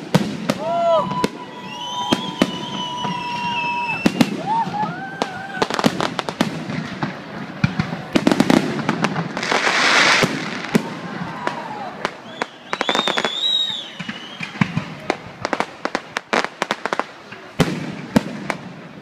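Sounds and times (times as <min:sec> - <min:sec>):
firework whistles: 0:00.0 - 0:06.1, 0:09.4 - 0:15.6
fireworks bangs: 0:00.0 - 0:19.0.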